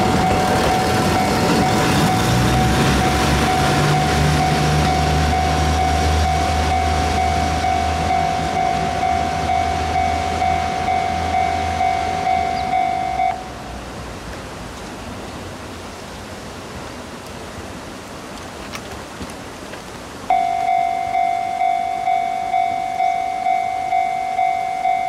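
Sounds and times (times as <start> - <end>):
level crossing bell ringing: 0.0 - 13.5, 20.3 - 25.0
train rolling: 0.0 - 16.0, 16.6 - 25.0.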